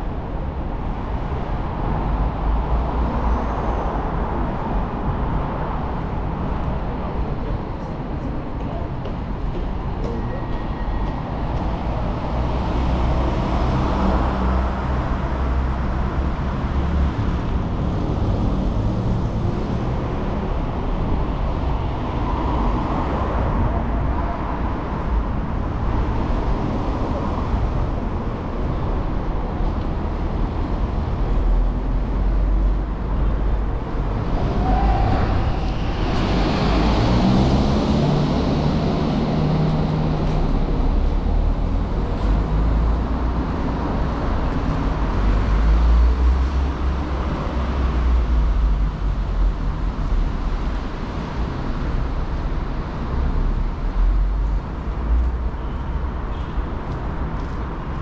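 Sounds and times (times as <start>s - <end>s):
street traffic: 0.0s - 58.0s
loud vehicle passing: 30.3s - 48.1s.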